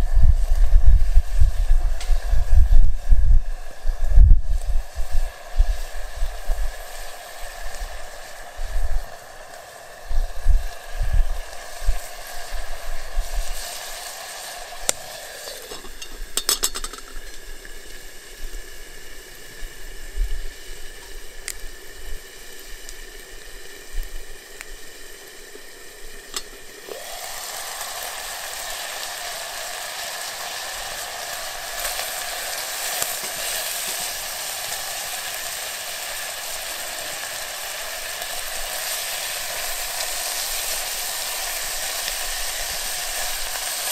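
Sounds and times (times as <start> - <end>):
food sizzling in a pot: 0.0 - 43.9
pot being stirred: 14.7 - 17.5, 30.1 - 34.9
pot lid clinks: 15.7 - 17.4.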